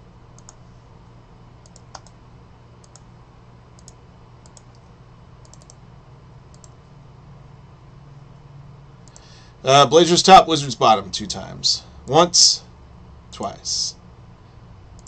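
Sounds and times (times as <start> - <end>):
low steady hum: 0.0 - 15.0
mouse and keyboard clicks: 5.4 - 5.8.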